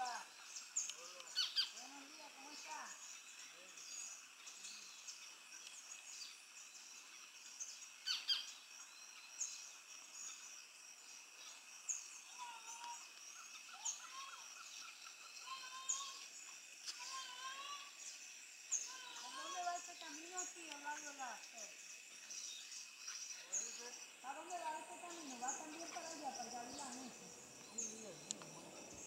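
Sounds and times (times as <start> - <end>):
birds warbling: 0.0 - 5.2, 7.0 - 10.5, 11.4 - 29.0
birds chirping: 0.0 - 29.0
sharp clicks: 27.6 - 28.5.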